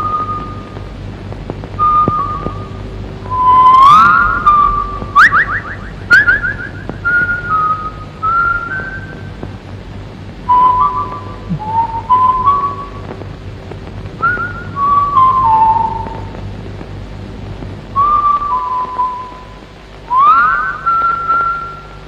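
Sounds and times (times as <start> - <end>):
low hum: 0.0 - 22.0
tape hiss: 0.0 - 22.0
whistle-like melody: 10.5 - 13.0, 20.1 - 22.0.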